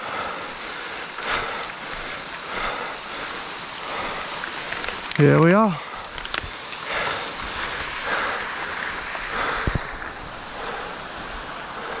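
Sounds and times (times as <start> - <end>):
waterfall splashing into pool: 0.1 - 12.0.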